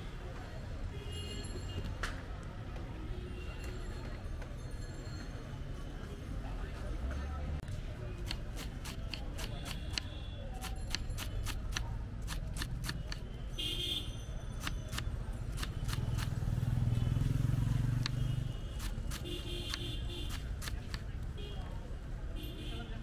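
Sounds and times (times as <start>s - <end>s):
knife chopping on wooden board: 8.2s - 13.2s.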